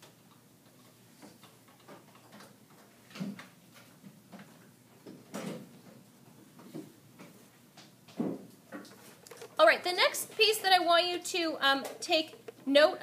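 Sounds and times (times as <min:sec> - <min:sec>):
faint clicks and taps: 0:06.2 - 0:13.0.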